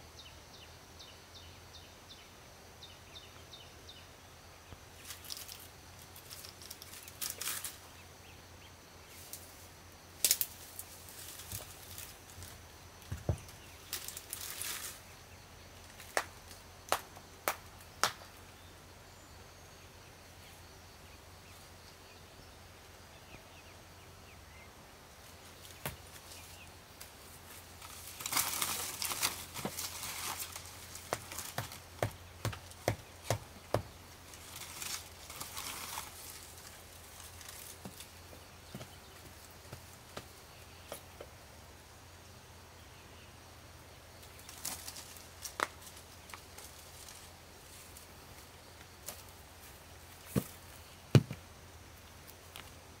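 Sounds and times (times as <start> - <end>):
brush rustling: 5.0 - 8.0, 9.1 - 15.2, 25.1 - 40.3, 44.2 - 51.4
footsteps on leafy dirt path: 25.3 - 40.4, 44.3 - 51.4.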